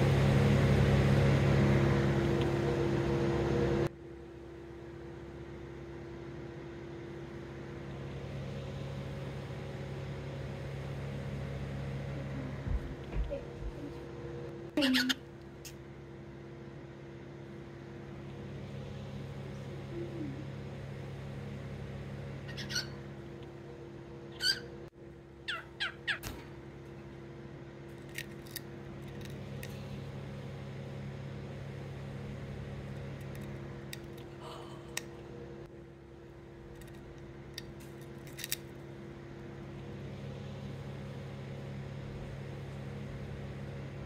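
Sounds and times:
steady low hum: 0:00.0 - 0:44.0
cockatiel chirping: 0:22.5 - 0:23.0, 0:24.4 - 0:24.7, 0:25.5 - 0:26.2.

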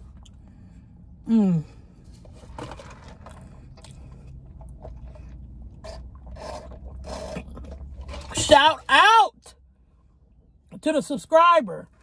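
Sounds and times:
person humming mmm: 0:01.3 - 0:01.7
chewing food: 0:02.2 - 0:08.3
sipping through a straw: 0:05.8 - 0:08.3.

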